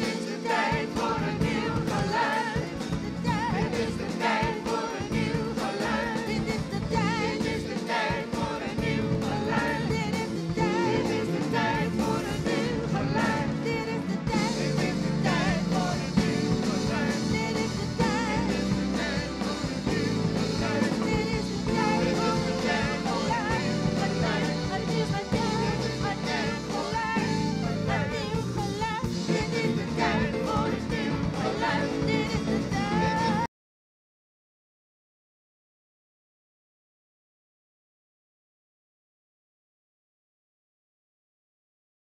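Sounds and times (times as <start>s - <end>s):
group of singers singing: 0.0s - 33.5s
live band playing: 0.0s - 33.5s.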